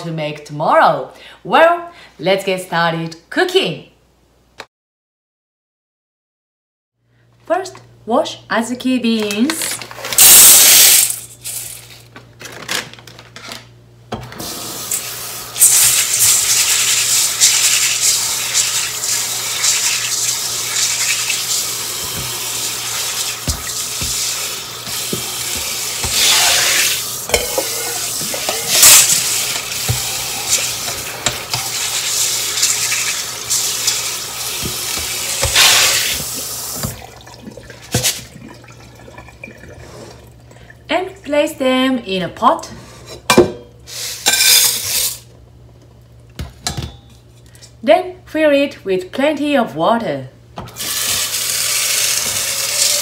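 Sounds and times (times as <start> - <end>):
kitchen tap running: 14.3 - 40.9, 50.6 - 53.0.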